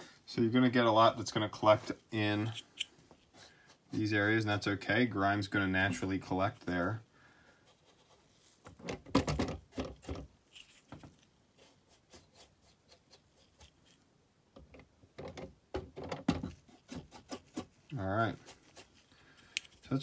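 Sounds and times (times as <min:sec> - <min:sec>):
brush scratching on plastic: 0:07.6 - 0:08.8, 0:10.0 - 0:14.0, 0:16.4 - 0:20.0.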